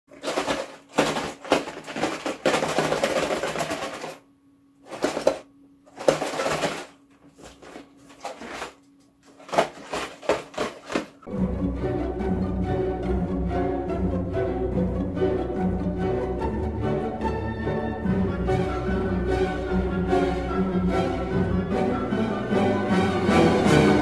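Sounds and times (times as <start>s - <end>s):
box rustling and knocking: 0.1s - 4.2s, 4.8s - 11.3s
faint steady hum: 0.1s - 11.3s.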